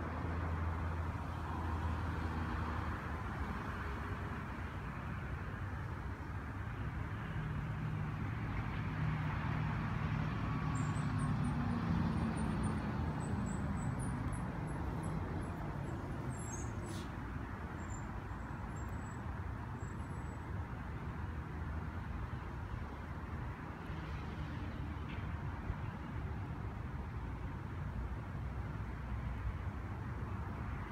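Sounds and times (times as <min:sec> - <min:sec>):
road traffic rumbling: 0:00.0 - 0:30.9
vehicle passing: 0:07.5 - 0:17.6.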